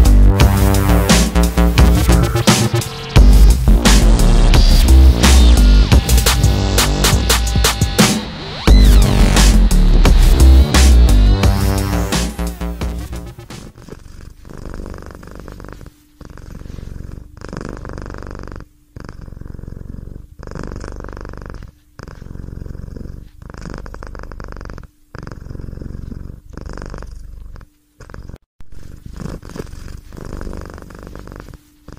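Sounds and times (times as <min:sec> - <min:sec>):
cat purring: 0:08.7 - 0:31.9.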